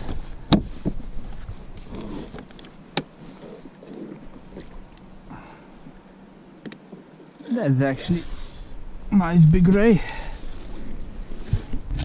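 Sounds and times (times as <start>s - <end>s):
wind rumble on microphone: 10.6s - 12.0s.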